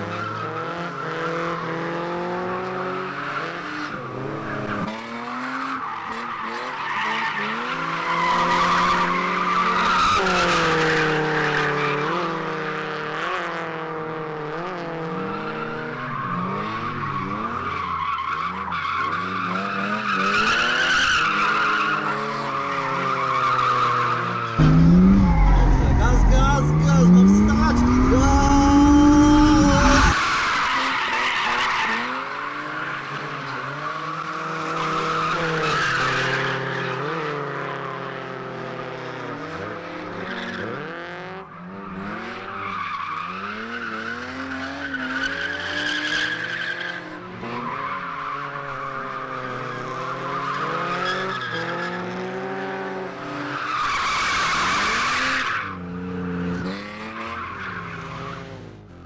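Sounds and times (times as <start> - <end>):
car engine revving: 24.6 - 30.6.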